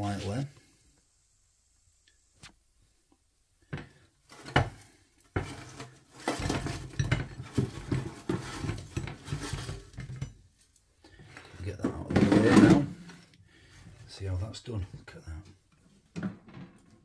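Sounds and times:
food clattering onto ceramic plate: 3.8 - 10.4.

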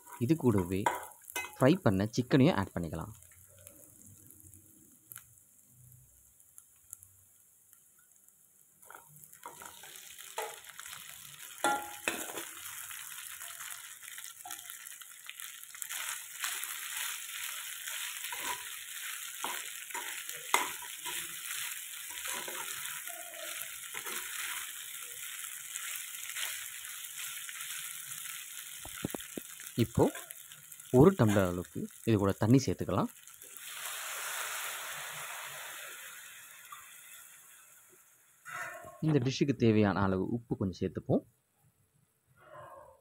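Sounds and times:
chicken sizzling in a pan: 0.0 - 39.0
metal spatula scraping a pan: 8.8 - 13.8, 17.8 - 24.8.

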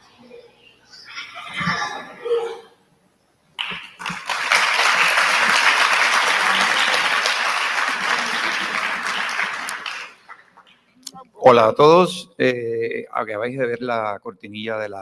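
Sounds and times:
audience applauding: 3.6 - 10.8.

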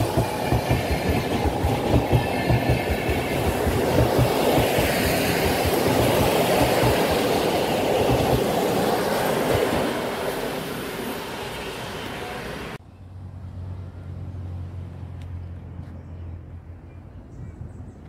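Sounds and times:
train coaches rolling on rails: 0.0 - 12.8.

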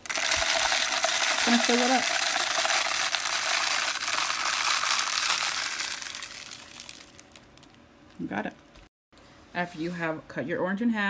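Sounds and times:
birdseed pouring into plastic bottle: 0.0 - 7.4.

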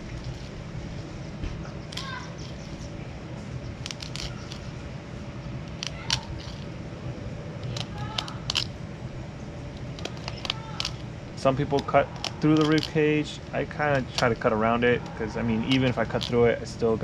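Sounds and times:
knife scraping and clicking on bone: 3.7 - 4.7, 7.6 - 8.7, 9.8 - 11.0, 11.7 - 13.0, 15.0 - 16.4.

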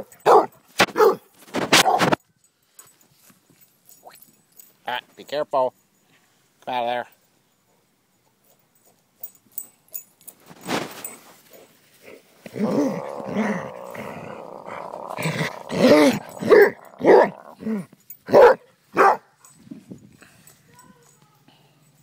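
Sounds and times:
dog barking: 0.0 - 2.2, 15.1 - 17.6, 18.3 - 19.3
dog growling: 12.5 - 17.9.

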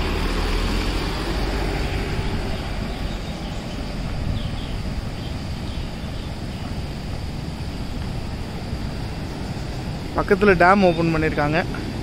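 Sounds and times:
steady rushing noise: 0.0 - 12.0
vehicle engine humming: 0.0 - 12.0.

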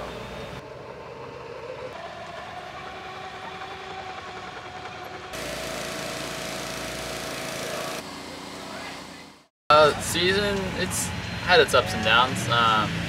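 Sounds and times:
bulldozer diesel engine running: 0.0 - 13.0
pressure washer engine running: 2.0 - 10.8.

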